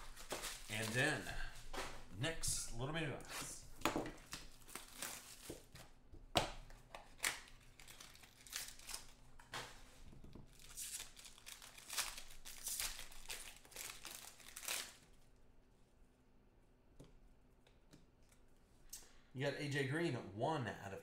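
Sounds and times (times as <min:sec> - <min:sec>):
plastic wrap crinkling: 0:00.0 - 0:01.4, 0:04.2 - 0:05.9, 0:06.8 - 0:09.5, 0:10.5 - 0:15.2.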